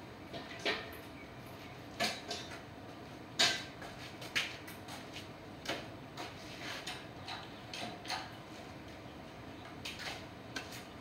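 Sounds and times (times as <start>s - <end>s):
metal clanks and knocks: 3.4s - 3.8s.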